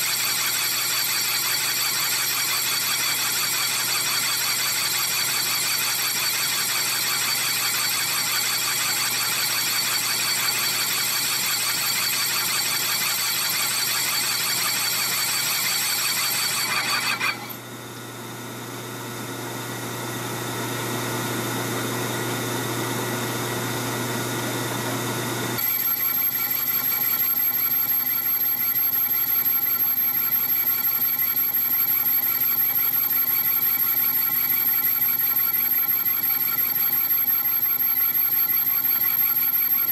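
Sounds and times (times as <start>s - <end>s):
lathe cutter squealing on metal: 0.1s - 17.6s.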